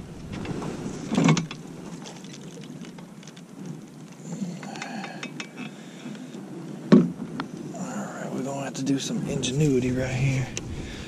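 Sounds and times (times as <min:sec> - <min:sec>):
faint whine: 0:00.0 - 0:11.0
fishing gear clicking and rattling: 0:00.3 - 0:07.5
thump: 0:06.9 - 0:07.1.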